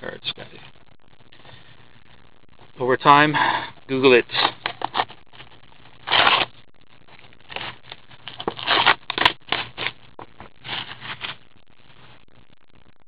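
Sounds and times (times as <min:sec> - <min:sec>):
plastic wrapping rustling: 0:07.1 - 0:11.4
cardboard box scraping: 0:10.6 - 0:11.4.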